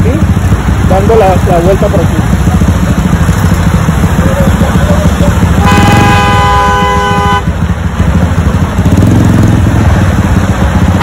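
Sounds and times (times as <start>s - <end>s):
low rumble of idling engines: 0.0s - 11.0s
vehicle horn honking: 4.5s - 7.6s.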